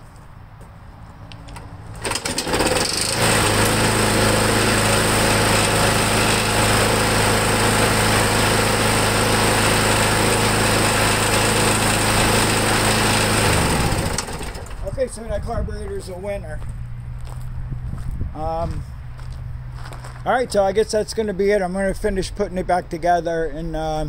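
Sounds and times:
mower engine starting and running: 1.5s - 15.1s.

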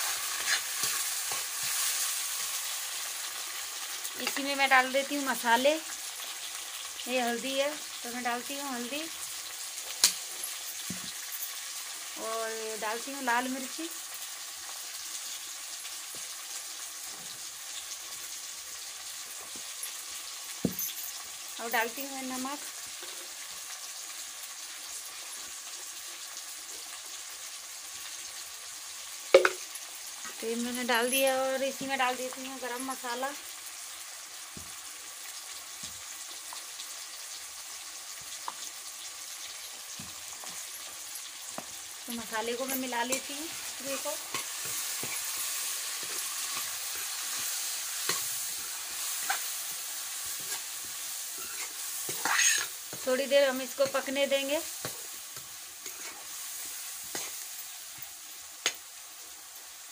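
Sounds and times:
masala frying in oil: 0.0s - 59.9s
spatula stirring: 42.6s - 57.5s.

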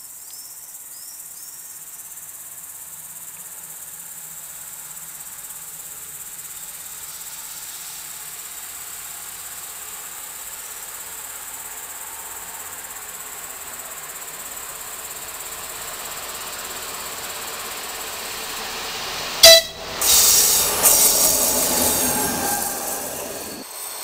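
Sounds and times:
crickets chirping: 0.0s - 24.0s
railcar running and wheel noise: 3.2s - 24.0s
train horn toot: 19.4s - 23.6s.

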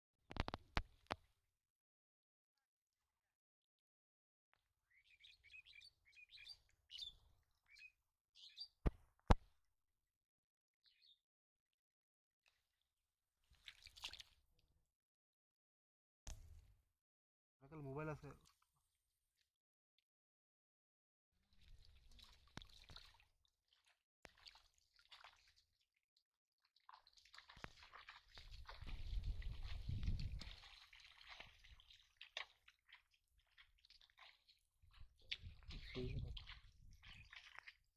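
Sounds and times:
small birds chirping: 4.8s - 8.8s, 10.8s - 11.2s, 35.2s - 37.6s
fish splashing and slurping: 13.4s - 14.6s, 21.4s - 37.9s.

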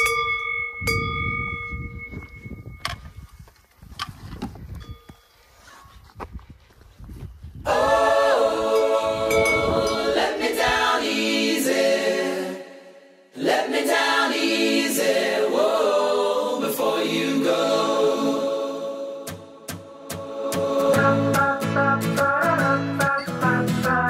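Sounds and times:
layered sung voices in chords: 7.6s - 24.0s.

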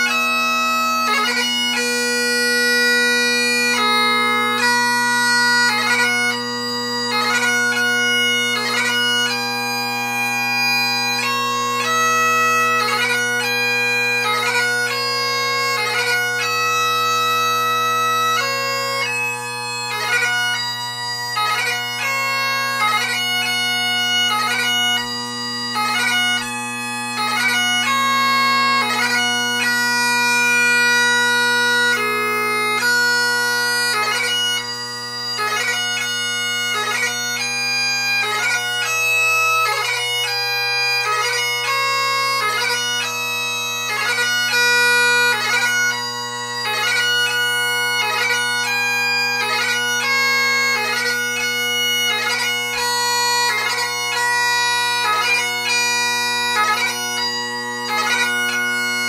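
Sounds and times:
bagpipe playing slow melody: 0.0s - 59.0s.

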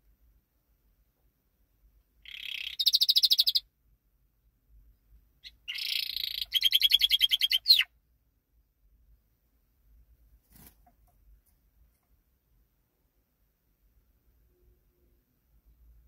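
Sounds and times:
canary singing trills: 2.2s - 3.7s, 5.4s - 8.0s.

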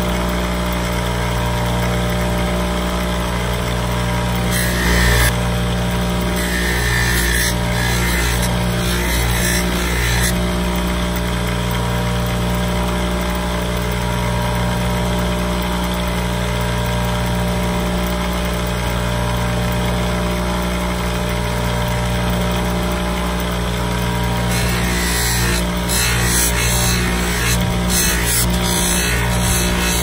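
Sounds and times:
bench buffer humming: 1.7s - 11.6s, 23.9s - 30.0s.

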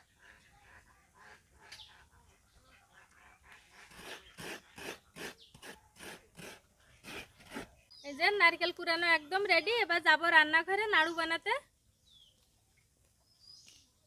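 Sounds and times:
coconut grater rasping: 3.8s - 7.7s.

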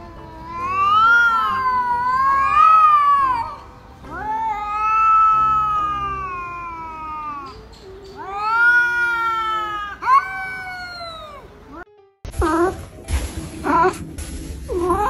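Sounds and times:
cats yowling: 0.0s - 11.8s.

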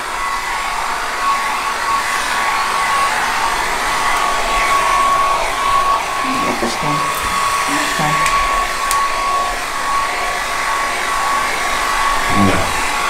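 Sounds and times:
hair dryer blowing with whine: 0.0s - 13.0s.

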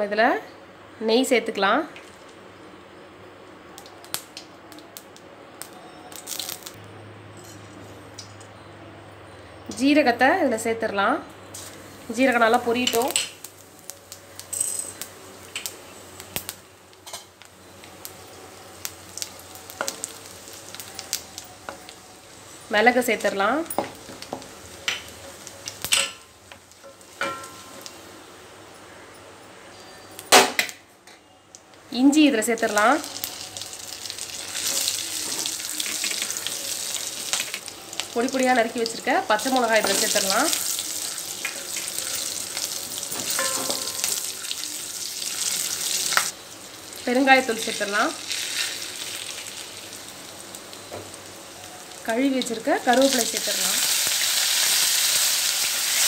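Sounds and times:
ghee sizzling in a pan: 3.8s - 6.8s, 11.5s - 29.0s, 32.0s - 56.0s.

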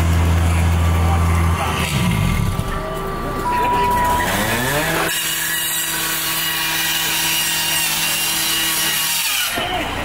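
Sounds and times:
gas-powered saw running: 4.2s - 9.7s.

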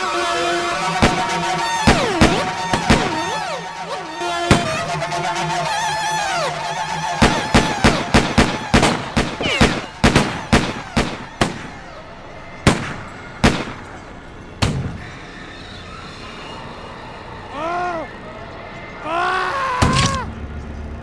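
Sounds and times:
gunshots: 0.8s - 5.4s, 6.6s - 15.0s.

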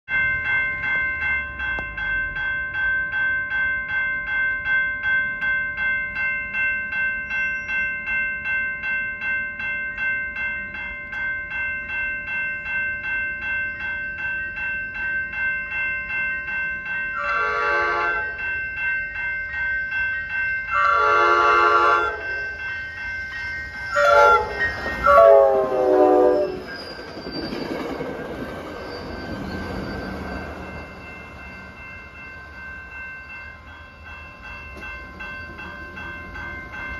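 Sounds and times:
crossing bell ringing: 0.1s - 36.9s
train wheels passing: 13.8s - 36.9s
train horn blasts: 17.2s - 18.4s, 20.7s - 22.4s, 24.0s - 26.6s.

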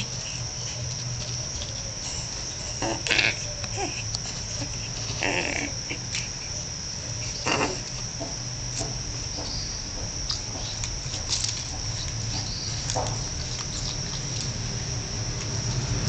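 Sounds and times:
high-pitched insect trill: 0.0s - 16.0s
rustling: 9.2s - 14.9s.

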